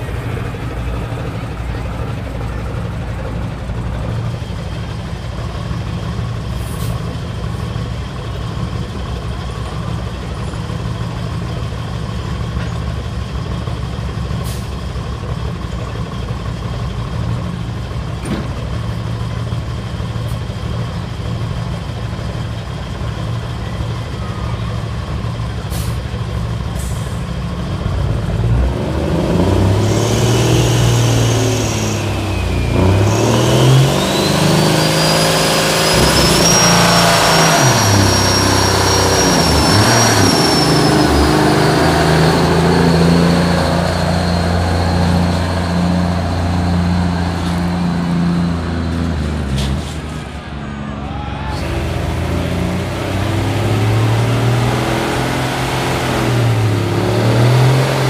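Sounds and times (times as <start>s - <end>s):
diesel truck engine revving: 0.0s - 58.0s
rising whine: 29.7s - 49.2s.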